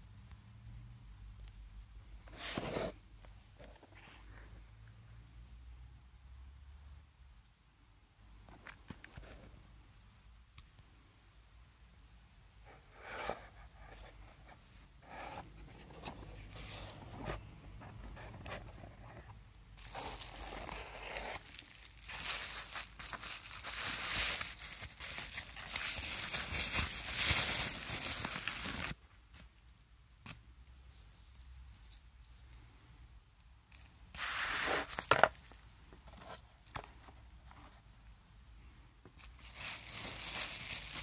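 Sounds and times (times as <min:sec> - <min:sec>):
bubble wrap crinkling: 0:19.8 - 0:29.7, 0:33.7 - 0:37.4, 0:39.2 - 0:41.0.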